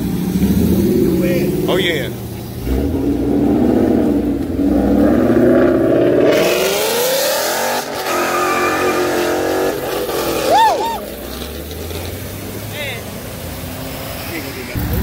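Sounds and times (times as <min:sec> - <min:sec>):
car engine accelerating hard: 0:00.0 - 0:15.0
short whooping sound: 0:10.4 - 0:11.1.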